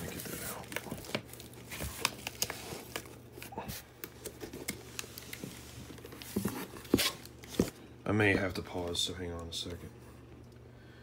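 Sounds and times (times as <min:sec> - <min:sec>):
cardboard box being handled: 0:00.0 - 0:07.8
low steady hum: 0:00.0 - 0:11.0.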